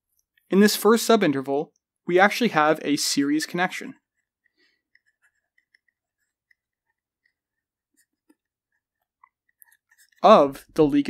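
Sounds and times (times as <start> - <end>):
stylus tapping on tablet screen: 4.2 - 10.2.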